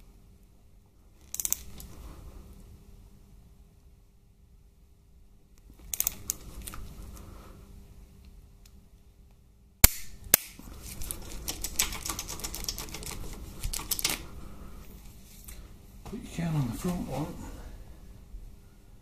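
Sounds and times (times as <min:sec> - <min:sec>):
ratchet clicks: 0:01.2 - 0:01.8, 0:05.9 - 0:06.4.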